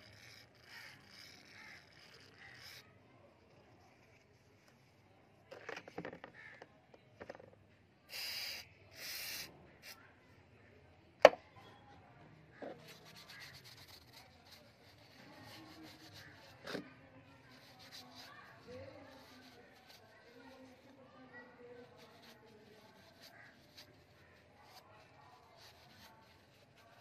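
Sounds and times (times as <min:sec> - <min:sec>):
tissue rubbing on metal: 0:12.8 - 0:16.8, 0:17.4 - 0:27.0.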